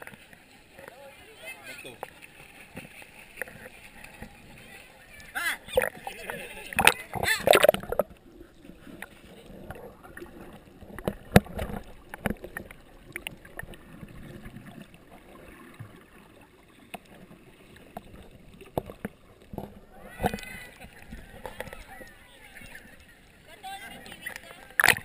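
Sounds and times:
muffled underwater water wash: 0.0 - 25.0
underwater clicks and knocks: 2.7 - 4.6, 5.7 - 15.0, 16.9 - 22.8, 24.0 - 25.0
camera splashing into water: 5.7 - 8.2, 24.2 - 25.0.

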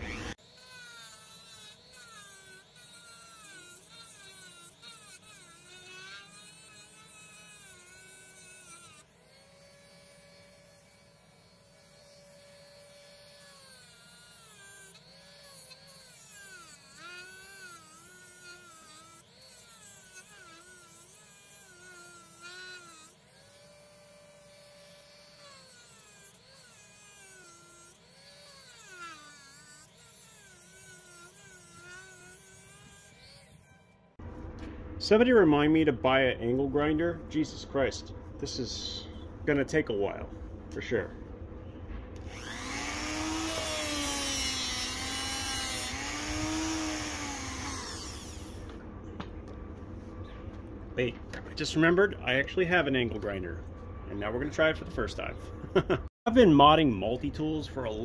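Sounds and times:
rotary tool grinding metal: 0.0 - 34.2, 42.2 - 48.8.

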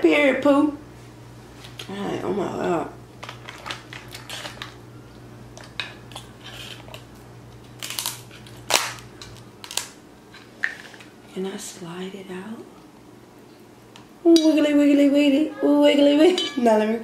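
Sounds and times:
crab shell cracking: 5.5 - 10.0.

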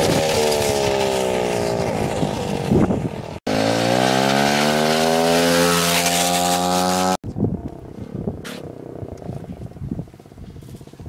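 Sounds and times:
motorbike engine revving: 0.0 - 7.2.

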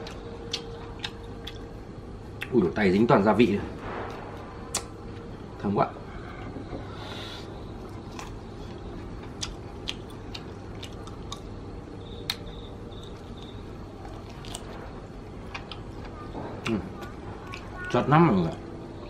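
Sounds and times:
person chewing meat: 0.0 - 2.5, 7.1 - 18.6
wet mouth clicks and smacks: 4.7 - 4.9.

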